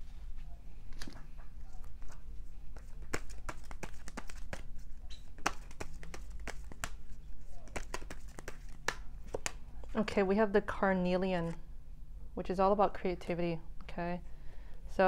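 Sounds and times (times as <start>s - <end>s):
cards being shuffled: 0.9s - 9.6s, 11.4s - 11.6s.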